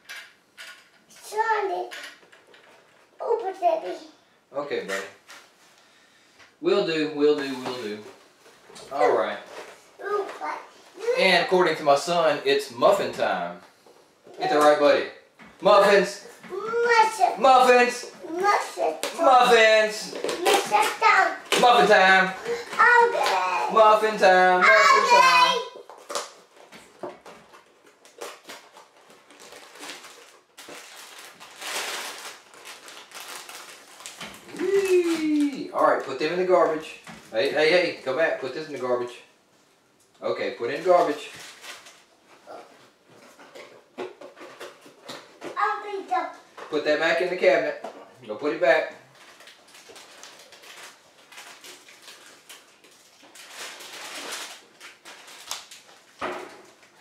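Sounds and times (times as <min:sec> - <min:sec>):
plastic wrapper crinkling: 0:19.0 - 0:36.2, 0:40.8 - 0:42.7, 0:49.1 - 0:57.0.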